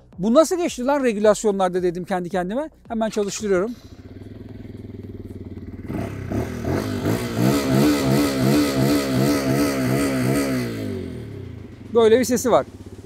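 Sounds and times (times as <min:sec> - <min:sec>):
motorcycle engine revving: 0:03.1 - 0:13.0.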